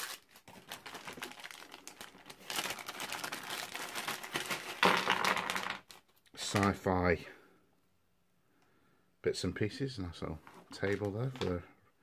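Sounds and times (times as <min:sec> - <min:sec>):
plastic packaging crinkling: 0:00.0 - 0:06.3.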